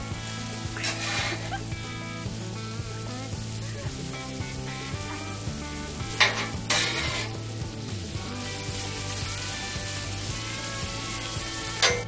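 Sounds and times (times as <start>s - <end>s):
bacon sizzling on griddle: 0.0s - 12.0s
metal spatula scraping: 0.8s - 1.6s, 6.1s - 7.4s.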